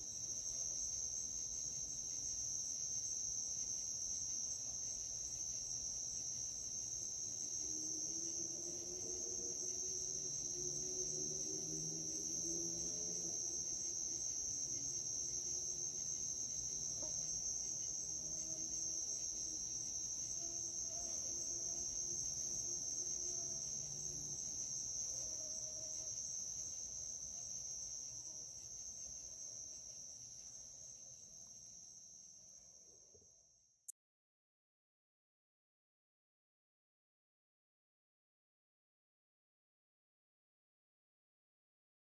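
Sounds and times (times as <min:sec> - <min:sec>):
crickets trilling: 0:00.0 - 0:33.2.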